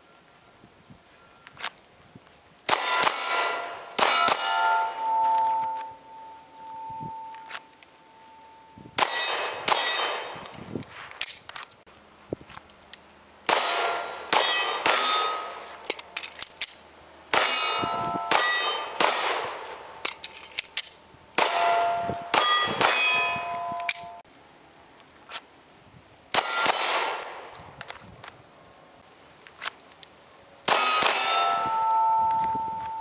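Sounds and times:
pistol shots: 2.7 - 5.1, 9.0 - 10.5, 13.5 - 15.6, 17.3 - 19.8, 26.3 - 27.5, 30.7 - 32.0
steel targets ringing: 2.7 - 10.5, 13.5 - 16.2, 17.3 - 20.0, 21.4 - 24.2, 26.4 - 27.5, 30.7 - 33.0.

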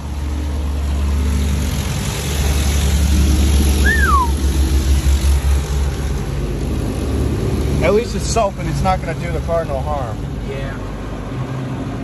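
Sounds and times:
short falling squeal: 3.8 - 4.4.

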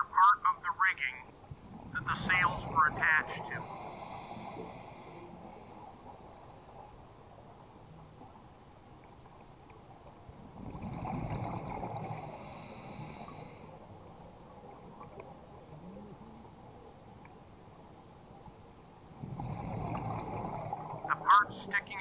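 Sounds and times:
low underwater murmur: 1.5 - 18.5
regulator bubbles gurgling with hiss: 10.4 - 16.5, 19.1 - 21.2.

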